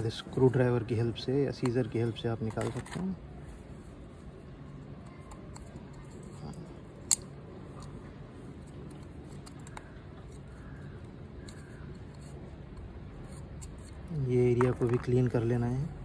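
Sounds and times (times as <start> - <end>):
plastic cap handling: 1.5 - 3.2, 4.8 - 15.6
sharp plastic click: 7.0 - 8.0.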